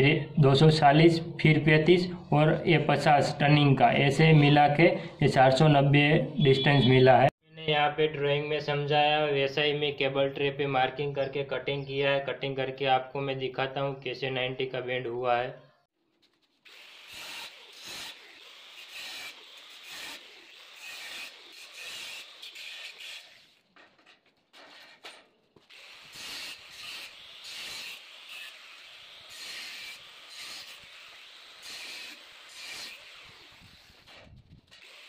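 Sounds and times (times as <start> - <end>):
angle grinder cutting steel: 16.5 - 23.6, 25.6 - 35.0.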